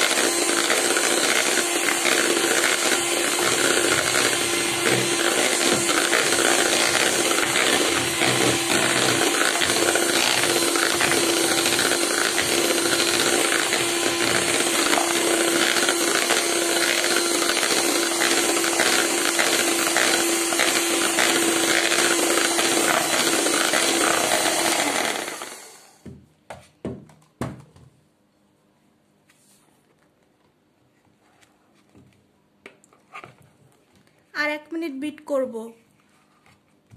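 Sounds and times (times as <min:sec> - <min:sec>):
electric hand mixer humming: 0:00.0 - 0:26.1.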